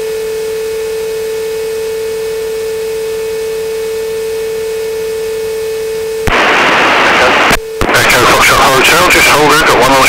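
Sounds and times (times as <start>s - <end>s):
steady electronic tone: 1.9s - 10.0s
radio hiss: 6.2s - 10.0s.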